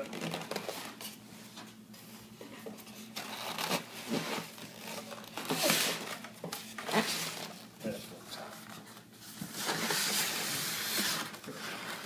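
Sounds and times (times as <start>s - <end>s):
styrofoam and cardboard scraping: 3.2s - 7.6s, 9.2s - 12.0s.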